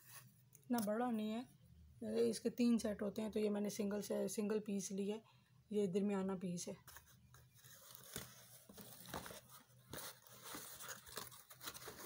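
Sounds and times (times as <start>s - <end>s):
cardboard and paper rustling: 6.8s - 12.0s.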